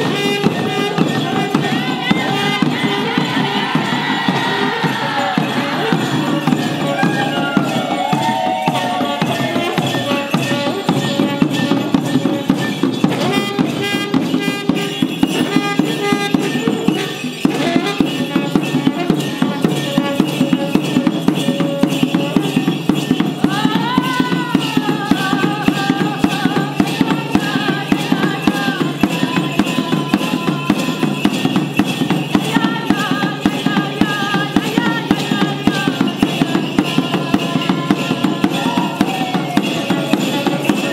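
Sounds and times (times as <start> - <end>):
horn notes: 0.0 - 12.5, 13.1 - 22.7
hide drum beating: 0.0 - 40.9.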